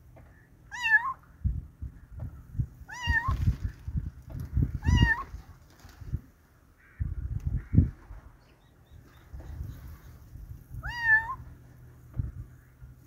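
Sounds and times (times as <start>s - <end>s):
low muffled rumbles: 0.0s - 13.0s
kitten meowing: 0.7s - 1.2s, 2.9s - 3.4s, 10.8s - 11.4s.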